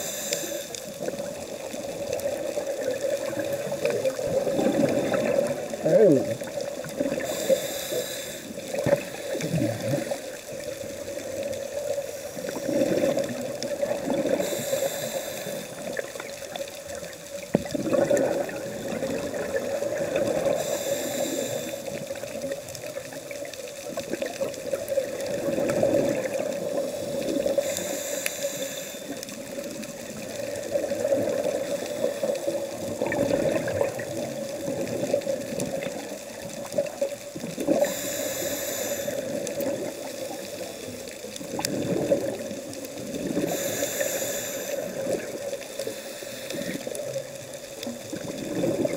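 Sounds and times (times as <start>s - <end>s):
regulator inhalation hisses: 0.0s - 1.1s, 7.1s - 10.3s, 14.2s - 16.2s, 20.4s - 22.2s, 26.8s - 29.4s, 37.8s - 39.6s, 43.4s - 47.0s
gurgling exhaust bubbles: 17.5s - 20.6s, 32.7s - 36.0s.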